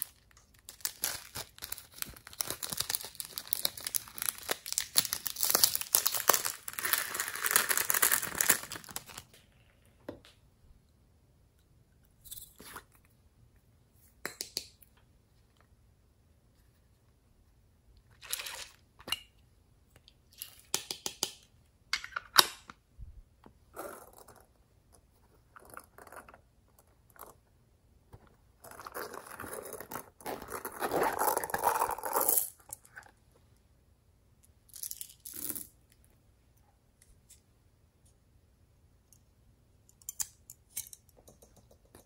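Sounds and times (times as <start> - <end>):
plastic crinkling: 0.0 - 9.4.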